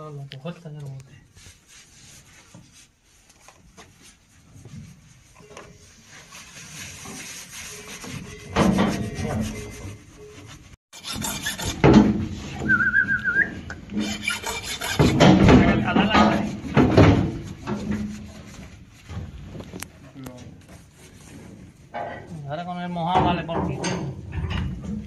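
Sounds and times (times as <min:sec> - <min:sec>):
rough rubbing and scraping: 0:01.3 - 0:22.2
wavering whistle-like tone: 0:12.6 - 0:13.7.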